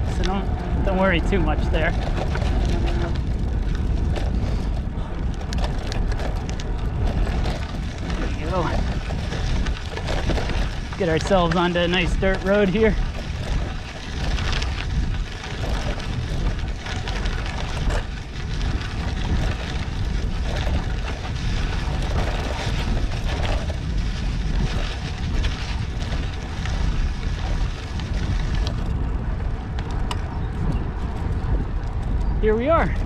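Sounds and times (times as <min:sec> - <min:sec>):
bike tyres rolling on dirt: 0:00.0 - 0:33.0
gravel ticks and rattles: 0:00.0 - 0:33.0
wind buffeting microphone: 0:00.0 - 0:33.0.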